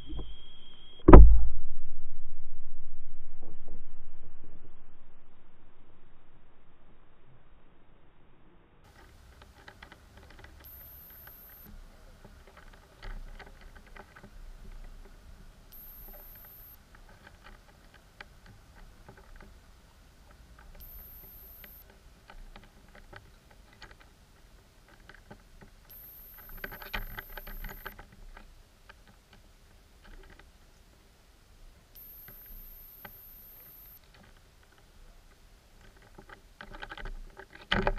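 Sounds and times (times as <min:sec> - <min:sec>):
low underwater rumble: 0:00.0 - 0:08.4
underwater clicks and crackles: 0:08.9 - 0:30.5, 0:32.0 - 0:37.9
thin high-pitched tone: 0:15.7 - 0:16.8, 0:20.8 - 0:21.8, 0:25.9 - 0:27.9, 0:32.0 - 0:34.0.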